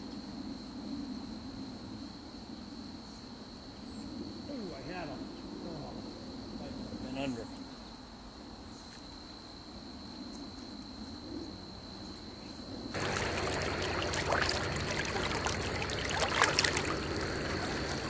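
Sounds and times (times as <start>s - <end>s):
river water rushing: 13.0s - 18.0s.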